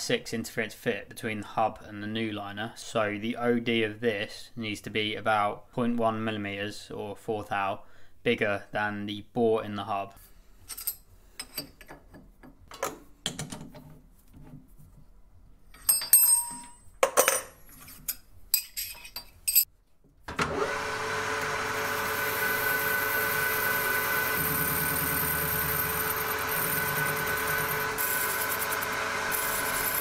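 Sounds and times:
metal lathe whining: 20.3s - 30.0s.

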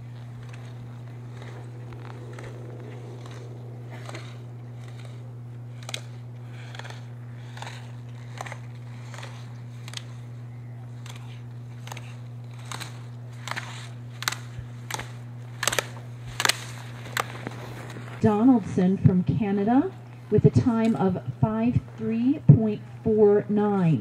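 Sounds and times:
skis clacking gate poles: 0.0s - 21.3s
steady low hum: 0.0s - 24.0s.

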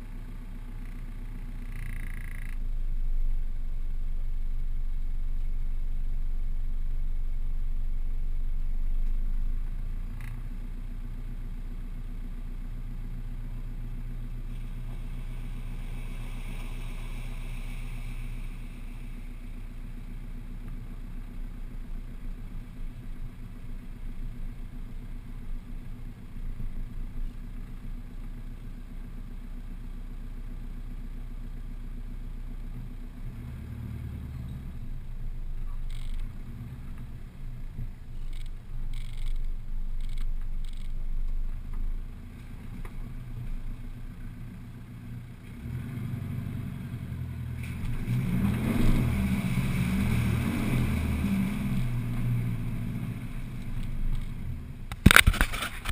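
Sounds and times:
vehicle engine running low: 0.0s - 55.9s
tyres splashing through mud: 14.4s - 20.2s, 47.1s - 55.9s.

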